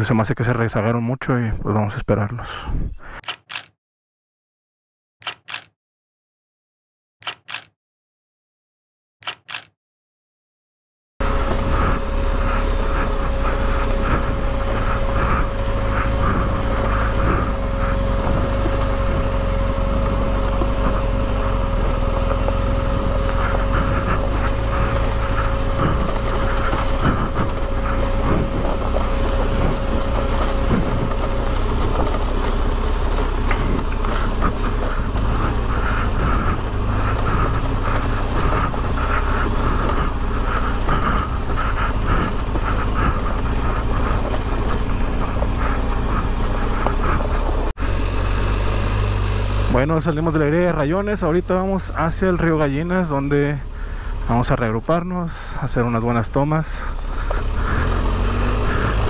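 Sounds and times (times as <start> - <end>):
steady hum: 11.2 - 54.4
motorcycle engine running: 11.2 - 59.0
wind rush on microphone: 11.5 - 47.7
knocks and rattles: 12.9 - 47.8.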